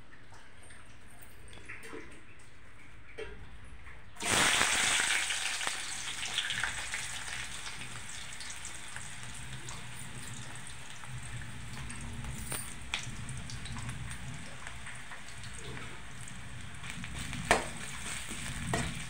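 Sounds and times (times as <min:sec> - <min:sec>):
hot oil sizzling: 0:04.2 - 0:19.0.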